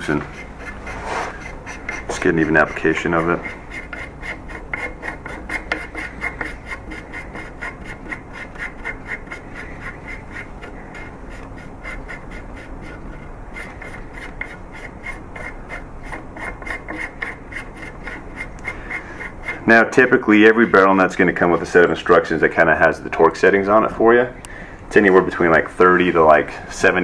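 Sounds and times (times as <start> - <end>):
metal threads rasping: 0.0 - 23.6.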